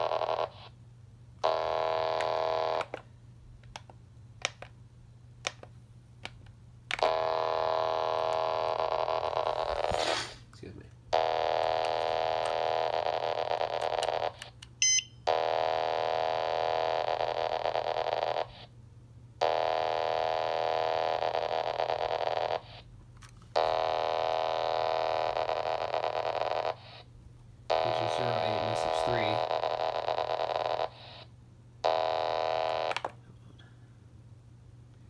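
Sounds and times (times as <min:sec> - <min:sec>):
data tone bursts: 0:14.8 - 0:15.2.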